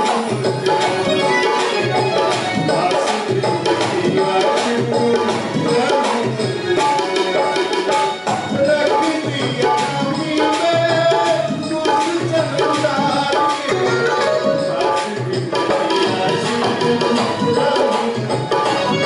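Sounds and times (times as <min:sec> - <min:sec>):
held pitched melody: 0:00.0 - 0:06.0, 0:10.2 - 0:19.0
drum strokes: 0:00.0 - 0:19.0.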